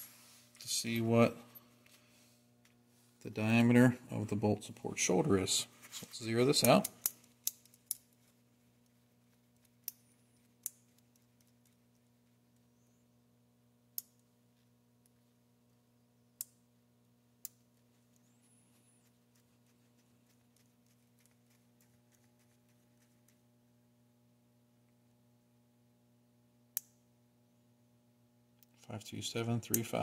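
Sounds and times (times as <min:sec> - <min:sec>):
faint steady hum: 0:00.0 - 0:30.0
small metal parts clicking: 0:06.6 - 0:08.1.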